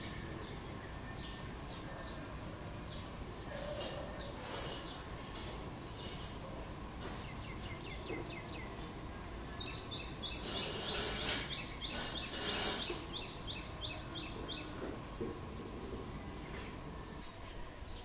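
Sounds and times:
loud high hiss: 9.9s - 14.0s.

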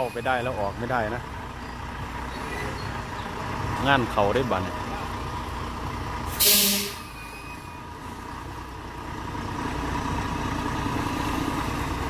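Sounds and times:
diesel truck engine running: 0.0s - 12.0s
air brake hiss: 6.3s - 7.1s.

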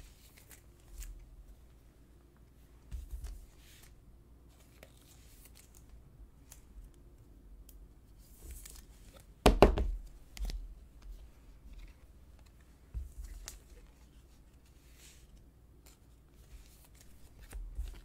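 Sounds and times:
sharp knock on table: 9.5s - 9.9s.

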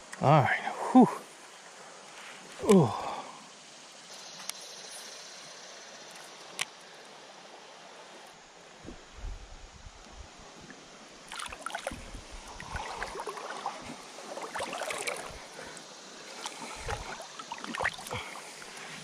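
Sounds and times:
person wading through water: 11.2s - 19.0s.

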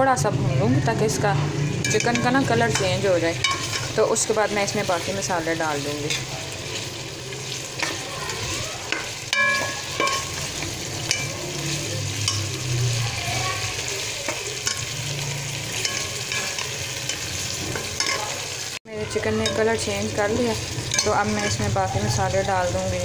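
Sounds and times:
chicken and onions sizzling in oil: 1.5s - 23.0s
metal spoon scraping pot: 1.7s - 18.5s, 19.1s - 22.2s
spoon clinking on pot: 1.8s - 4.0s, 8.9s - 11.6s, 12.2s - 12.6s, 14.3s - 14.9s, 15.7s - 18.3s, 19.4s - 20.0s, 20.9s - 21.7s.

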